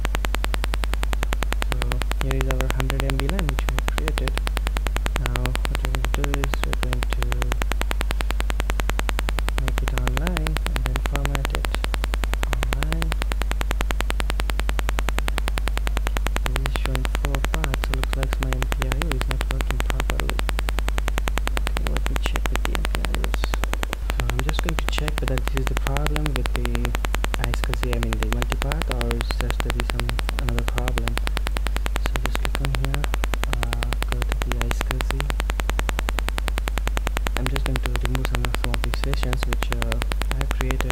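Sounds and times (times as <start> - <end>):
microphone electrical hum and buzz: 0.0 - 40.9
garbled indistinct voice: 1.6 - 4.4, 5.2 - 7.6, 9.6 - 13.3, 16.4 - 20.5, 21.6 - 31.2, 32.0 - 35.4, 37.4 - 40.9.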